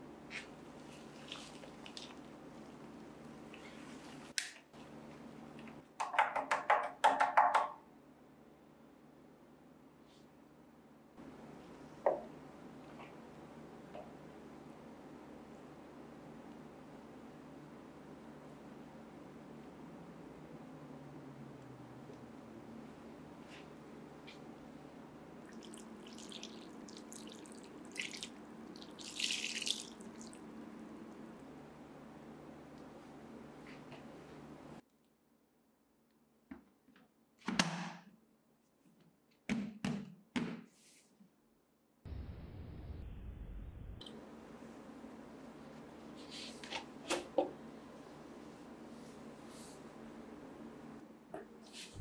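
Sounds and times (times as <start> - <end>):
water poured onto clay: 25.5 - 30.4.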